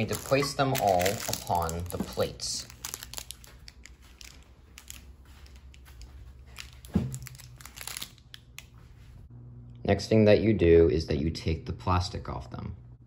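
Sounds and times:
plastic sleeves crinkling: 0.0s - 9.2s.

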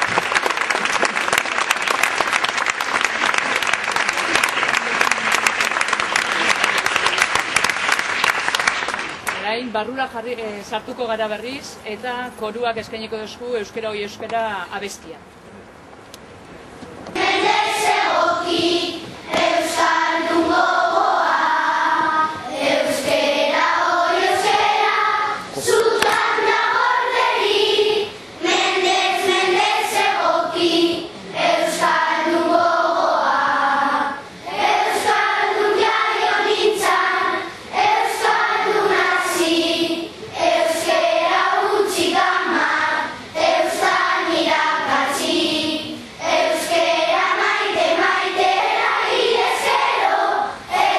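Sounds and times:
choir singing: 17.2s - 50.9s.

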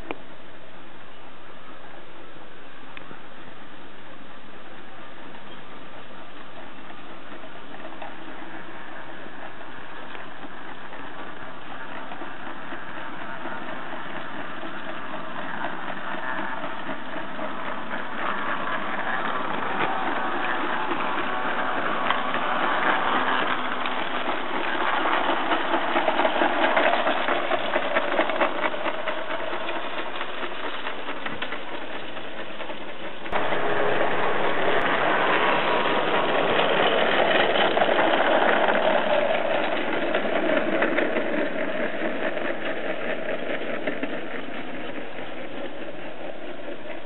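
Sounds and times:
model locomotive running: 0.0s - 47.0s.

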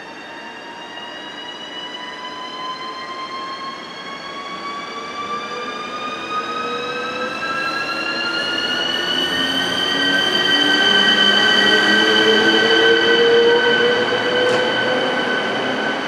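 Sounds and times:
electric locomotive whine: 0.0s - 16.0s.

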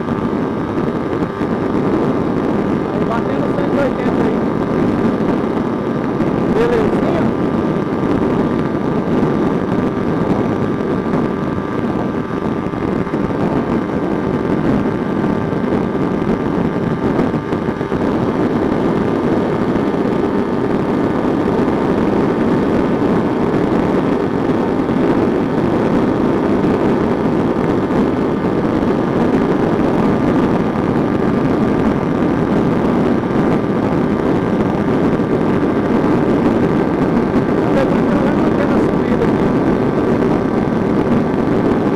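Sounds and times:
motorcycle engine at high revs: 0.0s - 41.9s.

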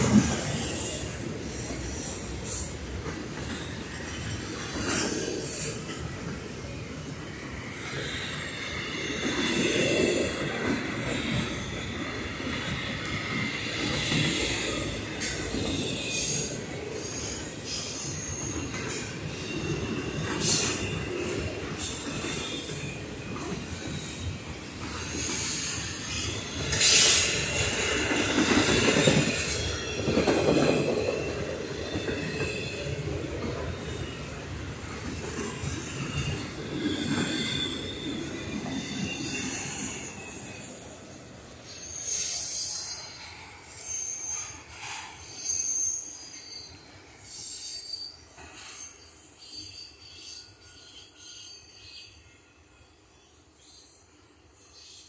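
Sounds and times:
train wheels rumbling on rails: 0.0s - 52.0s
high wheel squeals: 7.6s - 51.6s.

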